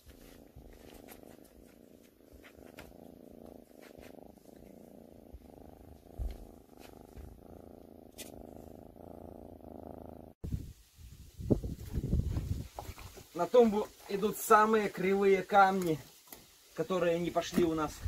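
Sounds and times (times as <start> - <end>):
cat purring: 0.0 - 10.4.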